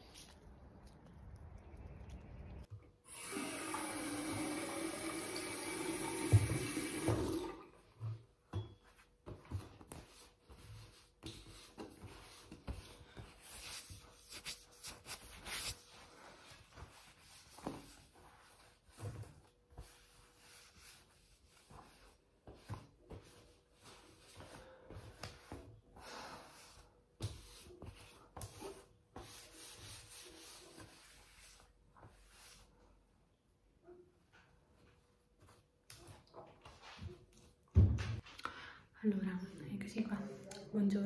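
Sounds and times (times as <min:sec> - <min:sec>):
tap water running into basin: 0:03.1 - 0:07.8
sponge wiping basin: 0:06.2 - 0:33.0.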